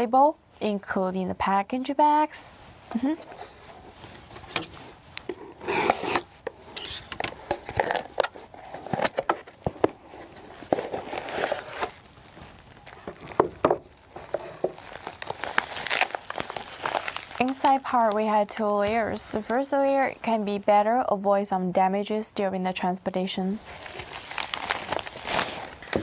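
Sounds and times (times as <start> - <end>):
bubble wrap crinkling: 3.0 - 20.1, 23.6 - 26.0
cardboard box scraping and rustling: 5.5 - 12.0.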